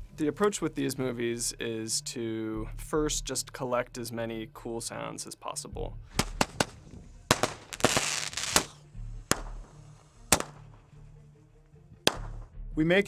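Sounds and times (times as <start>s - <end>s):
background music: 0.0s - 13.0s
sharp cracks and bangs: 6.2s - 10.8s, 12.1s - 12.5s.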